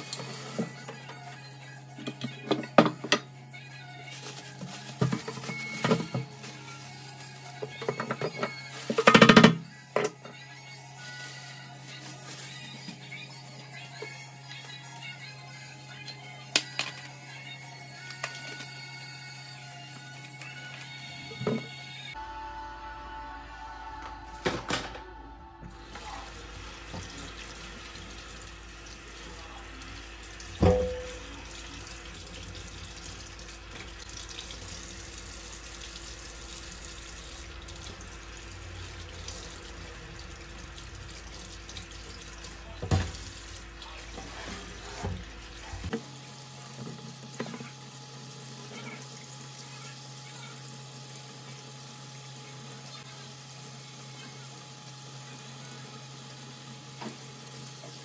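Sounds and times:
tap running into sink: 0:30.5 - 0:31.2.

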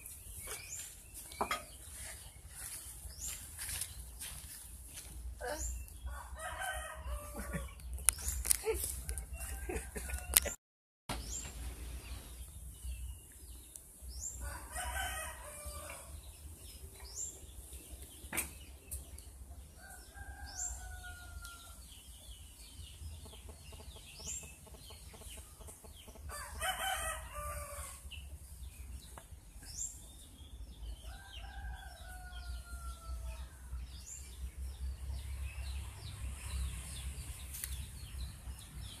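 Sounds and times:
small birds chirping: 0:00.0 - 0:09.7, 0:11.2 - 0:39.0
rooster crowing: 0:06.1 - 0:07.7, 0:09.3 - 0:10.6, 0:14.4 - 0:16.1, 0:26.3 - 0:28.0.

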